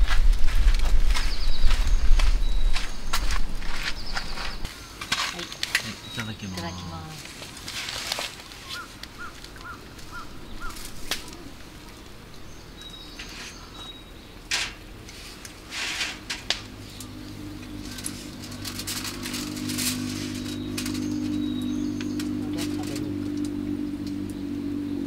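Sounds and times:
low steady hum: 0:00.0 - 0:25.0
small birds chirping: 0:00.4 - 0:15.6, 0:16.6 - 0:25.0.

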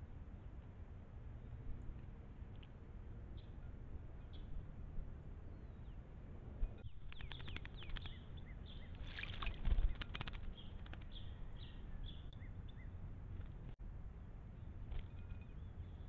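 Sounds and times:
low steady rumble: 0:00.0 - 0:16.0
small birds chirping: 0:06.7 - 0:13.8
bird splashing in water: 0:08.9 - 0:11.0.

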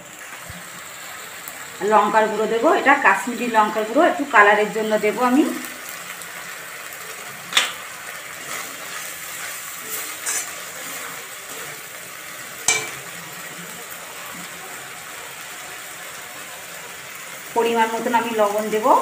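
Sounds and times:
paste sizzling in oil: 0:00.0 - 0:19.0.

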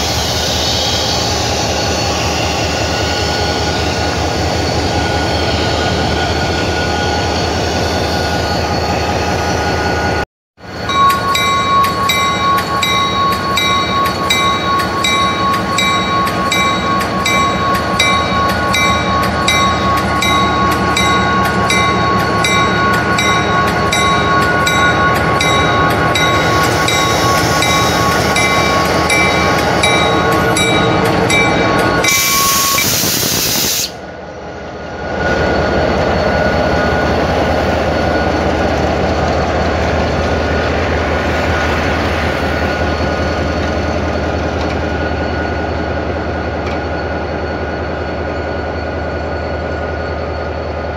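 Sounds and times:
locomotive diesel engine drone: 0:10.6 - 0:50.9
steady whine: 0:10.7 - 0:50.9
loud hiss: 0:32.0 - 0:34.0.

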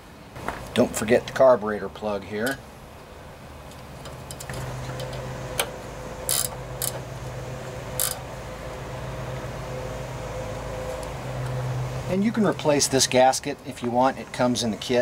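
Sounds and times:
low hum: 0:02.6 - 0:13.2
wrench clicking on metal: 0:06.3 - 0:07.0, 0:08.0 - 0:08.2.

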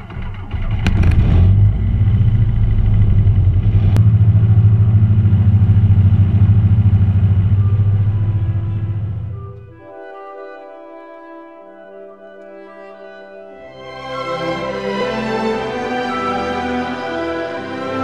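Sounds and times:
aircraft engine and propeller running: 0:00.0 - 0:10.0.

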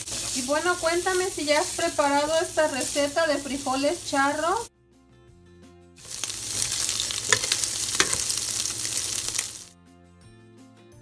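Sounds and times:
spatula stirring: 0:00.0 - 0:04.2, 0:06.0 - 0:09.7
sausage sizzling in a pan: 0:00.0 - 0:04.7, 0:06.0 - 0:09.8.

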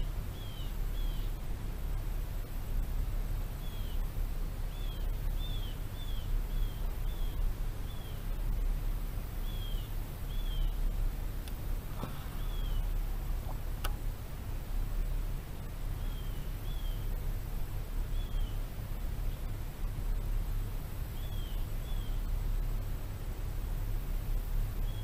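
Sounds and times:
bird chirping: 0:00.0 - 0:01.4, 0:03.6 - 0:04.1, 0:04.7 - 0:08.3, 0:09.4 - 0:10.9, 0:11.5 - 0:13.6, 0:15.9 - 0:17.2, 0:18.1 - 0:18.6, 0:21.1 - 0:22.3
low rumble: 0:04.0 - 0:18.3.

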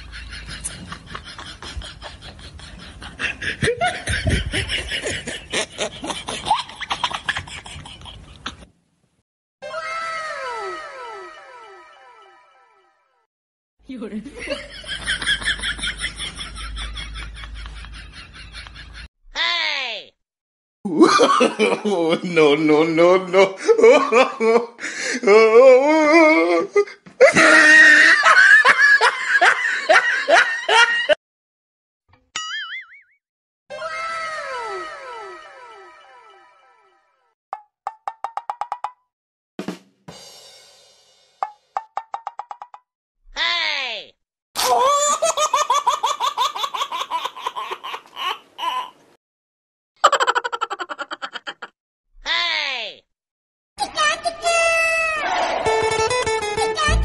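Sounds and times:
high-pitched comic laughter: 0:00.0 - 0:08.7, 0:09.6 - 0:11.9, 0:27.2 - 0:31.2, 0:33.7 - 0:36.6, 0:44.6 - 0:49.0, 0:50.0 - 0:51.8, 0:56.6 - 0:57.0.

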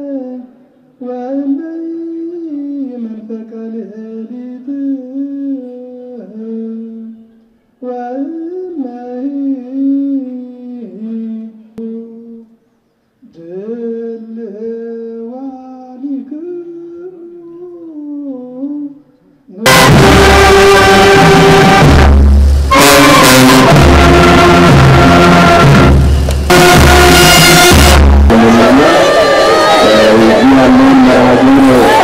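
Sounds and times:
person singing a chant: 0:00.0 - 0:07.2, 0:07.8 - 0:12.5, 0:28.3 - 0:32.0
brass band playing: 0:19.7 - 0:32.0.

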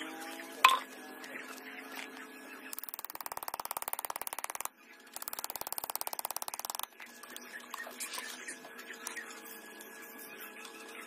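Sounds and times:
rapid clicking: 0:02.8 - 0:06.9.

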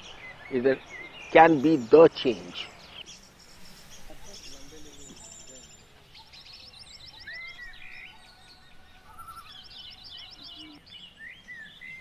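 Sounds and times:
birds chattering trills: 0:00.0 - 0:12.0
faint background noise: 0:00.0 - 0:12.0
bird whistled notes: 0:03.4 - 0:12.0.

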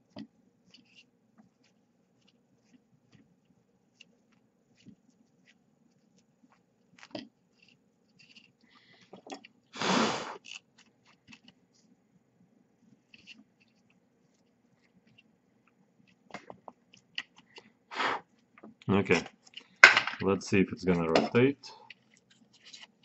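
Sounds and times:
small metal parts clicking: 0:21.9 - 0:23.0.

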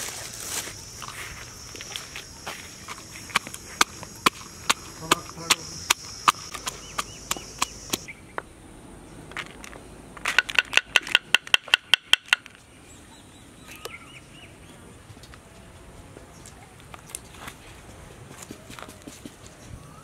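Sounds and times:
faint bird chirps: 0:00.8 - 0:08.4
sharp knocks: 0:03.3 - 0:08.1.

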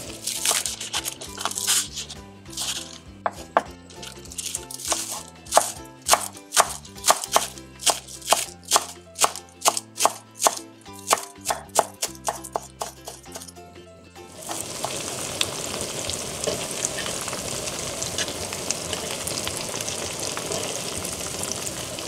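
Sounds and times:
knife chopping on wooden board: 0:00.2 - 0:03.7, 0:04.4 - 0:13.5.

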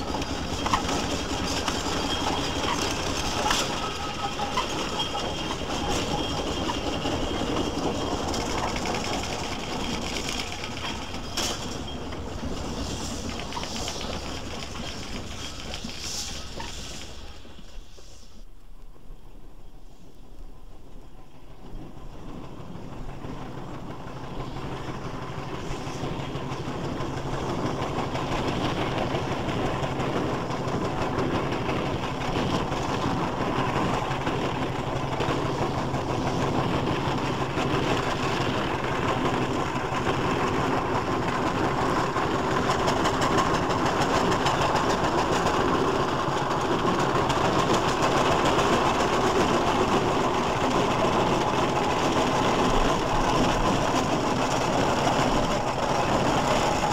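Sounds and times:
steam traction engine running: 0:00.0 - 0:56.9.

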